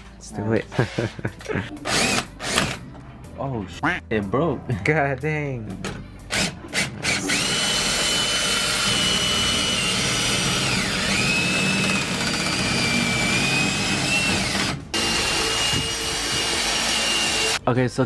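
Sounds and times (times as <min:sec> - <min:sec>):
cordless drill drilling into metal: 0:01.8 - 0:02.8, 0:06.3 - 0:17.6.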